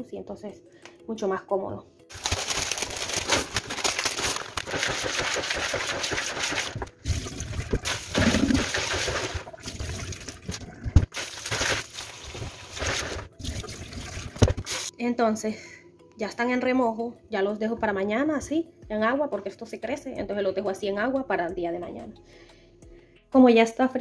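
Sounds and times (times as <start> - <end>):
hands swishing beans in water: 2.2 - 13.8
tap water running into basin: 4.6 - 14.9.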